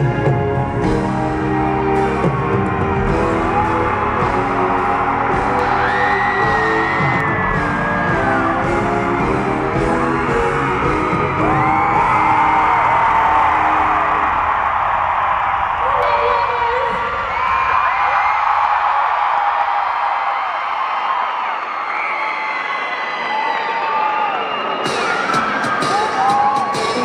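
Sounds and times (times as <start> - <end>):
concert music with synth chords: 0.0 - 17.2, 24.7 - 27.0
fans screaming and whooping: 0.8 - 27.0.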